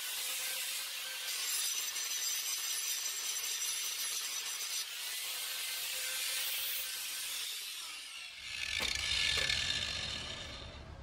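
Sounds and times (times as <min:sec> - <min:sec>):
angle grinder winding down: 0:07.8 - 0:11.0.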